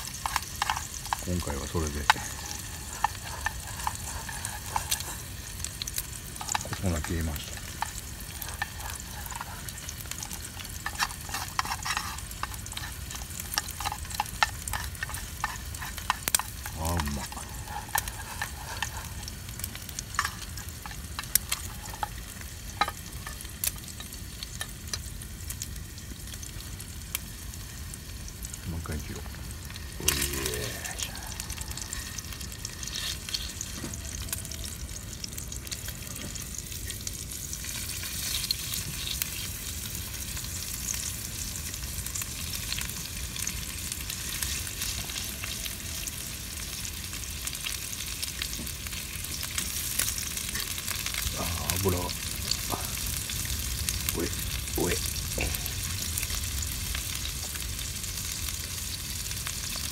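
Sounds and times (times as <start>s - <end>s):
utensil scraping and clicking: 0.0s - 22.2s
food sizzling in a frying pan: 0.0s - 59.9s.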